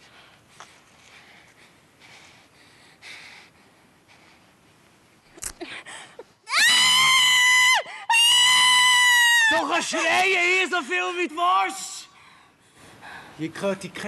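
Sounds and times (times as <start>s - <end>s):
woman screaming: 6.5s - 10.0s.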